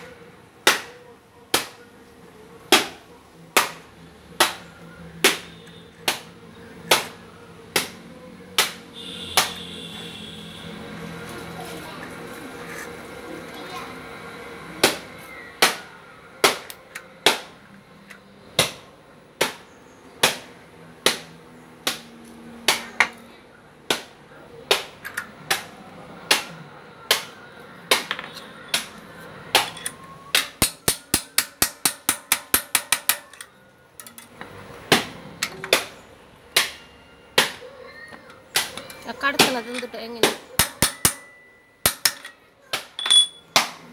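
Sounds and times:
hammer striking metal: 27.9 - 34.2, 38.6 - 43.8.

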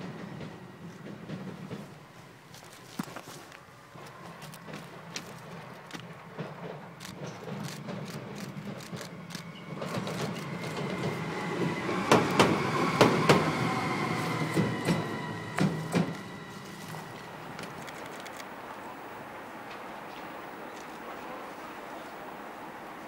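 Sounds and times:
wheels clacking over rail joints: 0.0 - 13.6
electric locomotive passing: 0.0 - 23.0.

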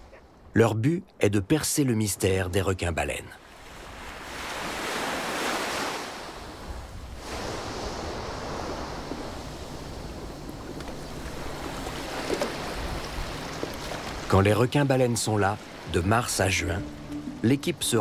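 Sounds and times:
small waves breaking on beach: 3.4 - 17.4.

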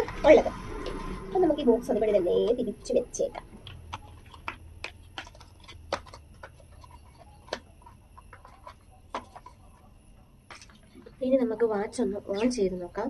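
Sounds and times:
cardboard box clicks and taps: 3.6 - 9.5.

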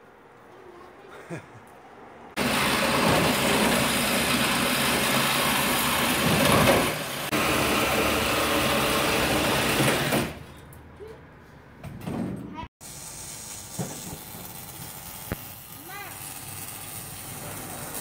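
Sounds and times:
loud power tool: 2.4 - 10.4, 12.8 - 18.0.

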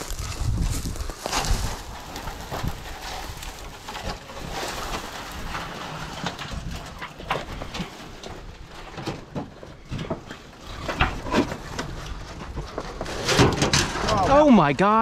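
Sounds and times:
footsteps through dry brush: 0.0 - 8.5
low uneven rumbles: 0.0 - 13.1.

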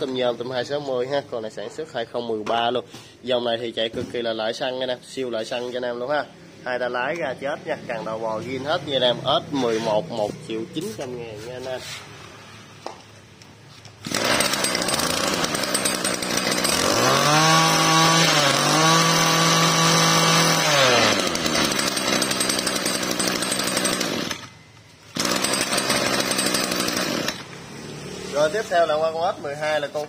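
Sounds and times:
brush cutter engine running: 14.0 - 28.6.

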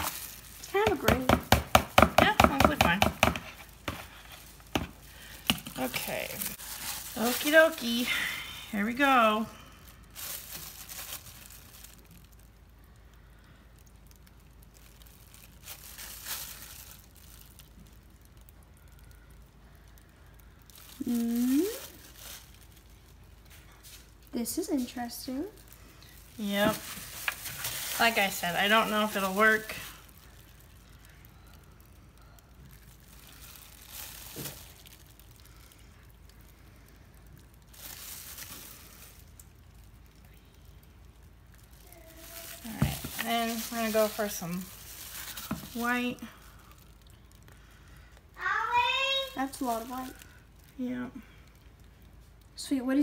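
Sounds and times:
plastic glove crinkling: 0.0 - 53.0.

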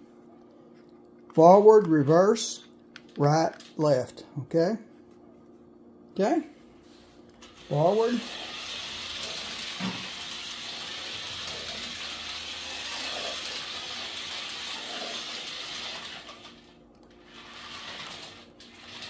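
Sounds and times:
toy truck motor whirring: 7.5 - 19.0.

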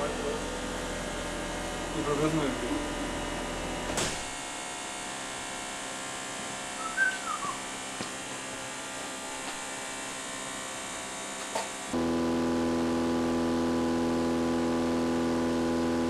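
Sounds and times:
falling whistle-like tone: 6.8 - 7.6.

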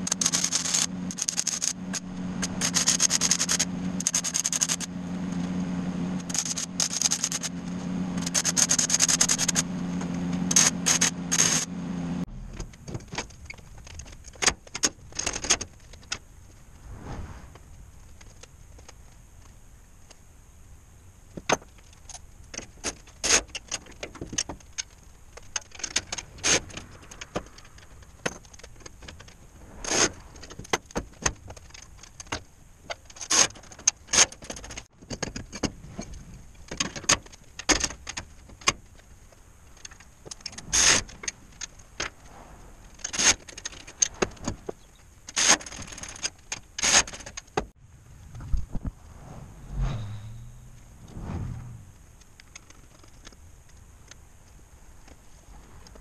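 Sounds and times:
faint high whine: 47.9 - 52.5.

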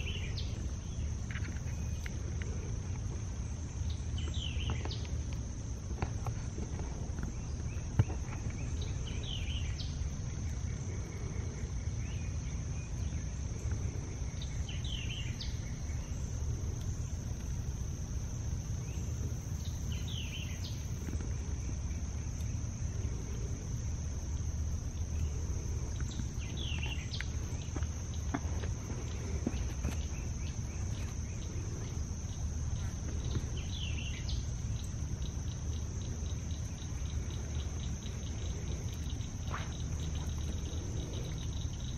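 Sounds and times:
high-pitched insect chorus: 0.0 - 41.9.

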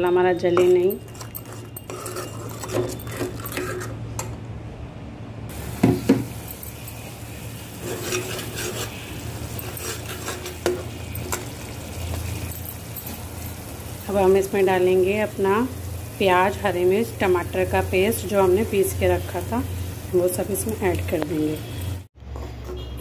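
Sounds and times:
metal spatula scraping pan: 0.6 - 4.0, 7.7 - 11.5
masala sizzling faintly: 5.5 - 22.1.

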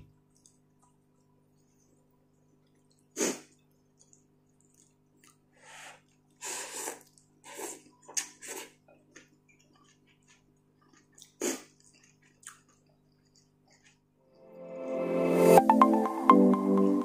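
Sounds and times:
chewing and mouth clicks: 2.6 - 14.1
person slurping noodles: 5.6 - 8.8, 11.3 - 11.8.

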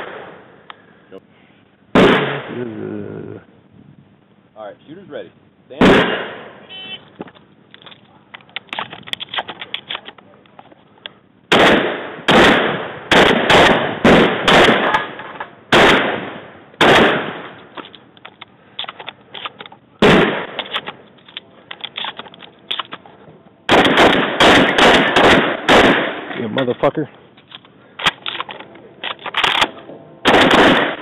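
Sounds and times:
shotgun shots: 0.0 - 0.5, 1.9 - 2.6, 5.8 - 6.6, 11.5 - 17.7, 20.0 - 21.0, 23.7 - 26.4, 28.0 - 31.0.

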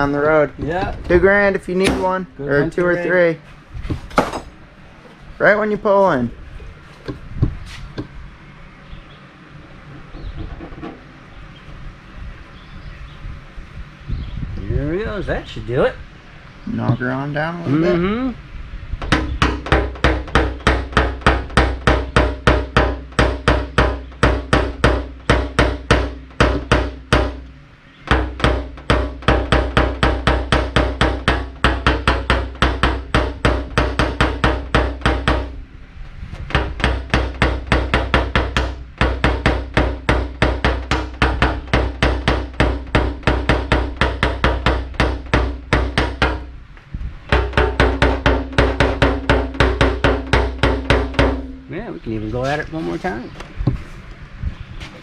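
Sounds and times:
hammer tapping metal punch: 36.5 - 46.5, 47.3 - 51.7.

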